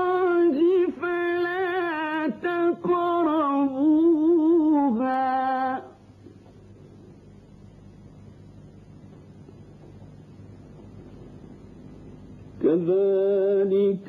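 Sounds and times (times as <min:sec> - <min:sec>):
man reciting melodically: 0:00.0 - 0:05.9, 0:12.6 - 0:14.0
faint hum: 0:00.0 - 0:14.0.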